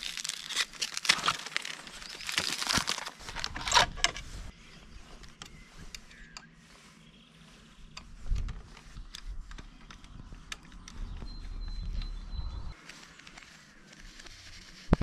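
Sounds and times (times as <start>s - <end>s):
packaging wrap crinkling: 0.0s - 3.9s.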